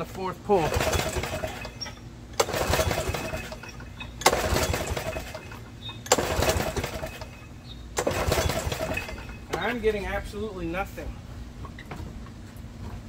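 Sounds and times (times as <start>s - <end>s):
recoil starter cranking engine: 0.5s - 10.0s.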